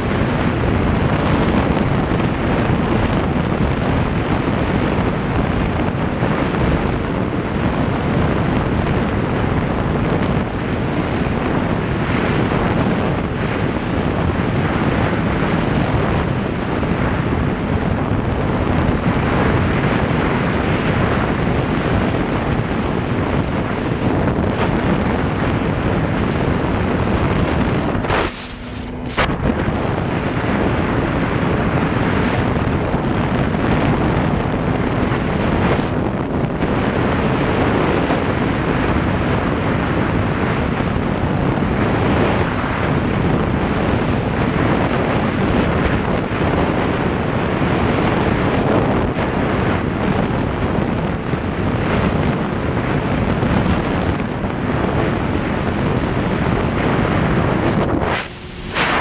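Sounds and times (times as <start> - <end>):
snowmobile running at speed: 0.0 - 59.0
wind noise on microphone: 0.0 - 59.0.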